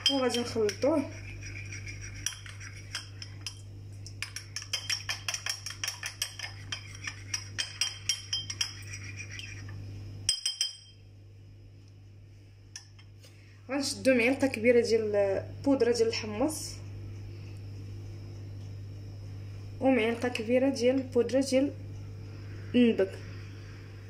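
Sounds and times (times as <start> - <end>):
spoon clinking in ceramic dish: 0.0 - 0.8, 2.2 - 3.6, 4.2 - 9.6, 10.3 - 11.0.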